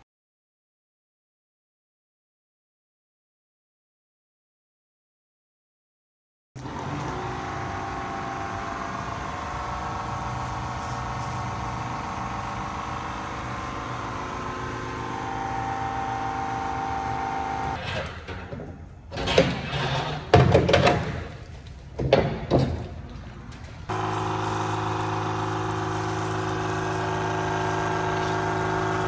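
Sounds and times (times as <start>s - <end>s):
motor drone: 6.6s - 17.8s, 23.9s - 29.0s
loud irregular knocks: 22.0s - 23.0s.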